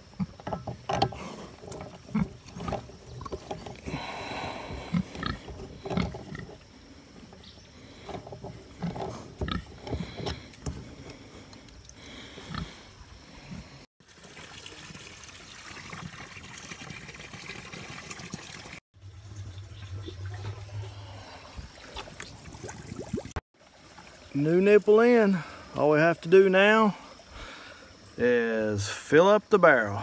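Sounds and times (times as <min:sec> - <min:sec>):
water stream running onto mud: 0:14.0 - 0:18.8.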